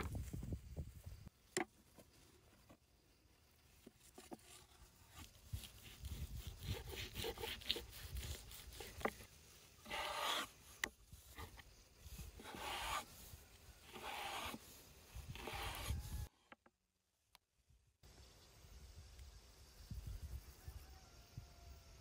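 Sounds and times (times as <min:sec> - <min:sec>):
rasping knife cut strokes: 0:05.2 - 0:11.6, 0:12.3 - 0:16.1
knife slicing raw meat: 0:05.5 - 0:09.2.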